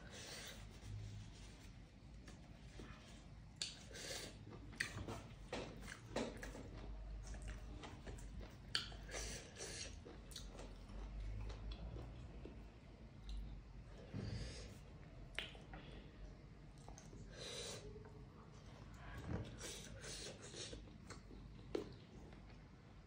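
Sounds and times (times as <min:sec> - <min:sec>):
person chewing food: 0:03.6 - 0:13.6, 0:16.7 - 0:18.2, 0:19.6 - 0:22.7.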